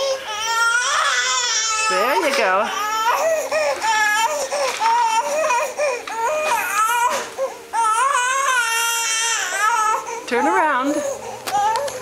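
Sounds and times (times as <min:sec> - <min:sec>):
toddler whining cries: 0:00.0 - 0:12.0.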